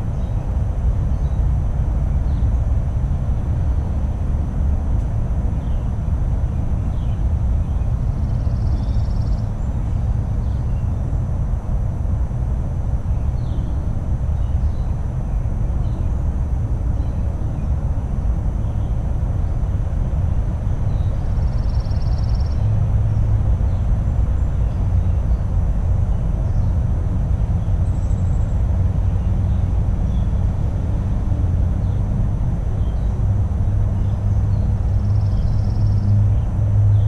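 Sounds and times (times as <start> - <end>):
steady low rumble: 0.0 - 37.0
faint bird chirps: 20.9 - 22.7, 34.0 - 36.2.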